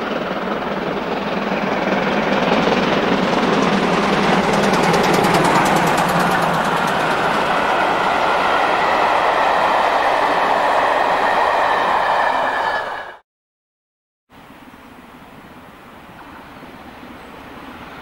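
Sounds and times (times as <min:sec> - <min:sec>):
train coaches rushing past: 0:00.4 - 0:13.2.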